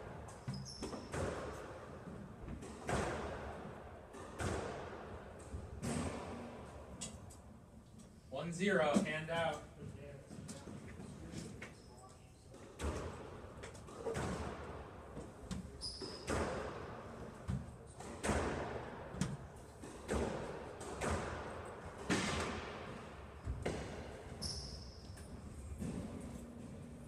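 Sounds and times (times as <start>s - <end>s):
short high squeak: 15.8s - 16.3s, 24.4s - 25.0s.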